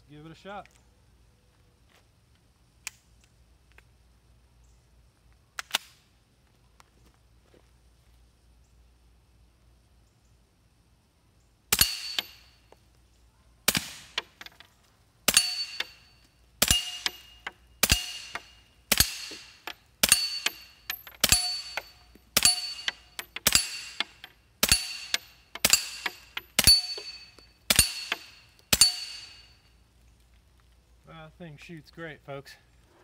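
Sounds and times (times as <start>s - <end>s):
bullet ringing on steel target: 11.8s - 12.6s, 15.3s - 29.6s
suppressed rifle shots: 13.7s - 14.5s, 16.6s - 29.4s.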